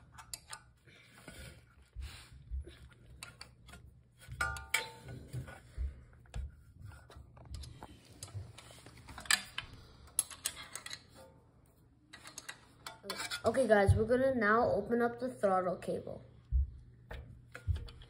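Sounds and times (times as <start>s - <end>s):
metal clicks and taps: 9.1s - 11.0s.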